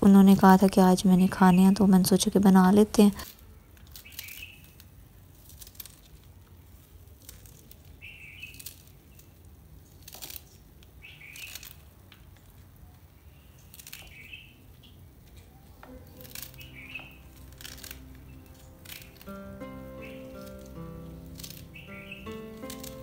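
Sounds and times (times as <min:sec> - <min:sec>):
knife cutting spinach leaves: 0:03.2 - 0:12.6, 0:13.4 - 0:14.6, 0:15.4 - 0:23.0.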